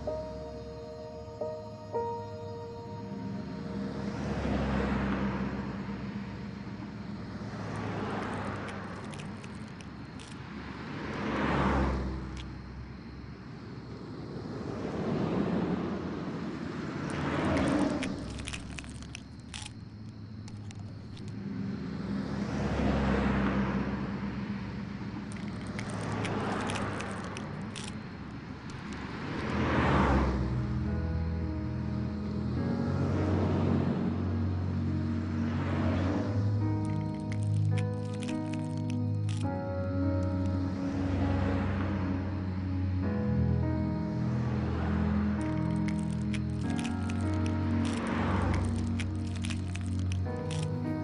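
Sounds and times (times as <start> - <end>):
cars passing by: 0.0 - 51.0
faint small clicks: 36.8 - 39.5, 45.4 - 50.8.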